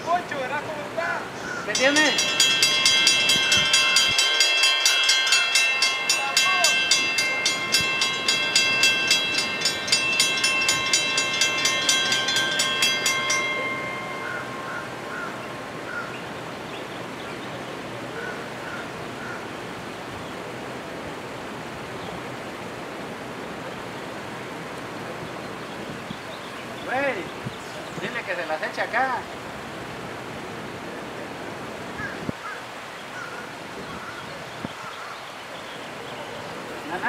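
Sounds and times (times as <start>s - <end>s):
steady background hush: 0.0s - 25.1s
railroad crossing bells ringing: 1.6s - 19.9s.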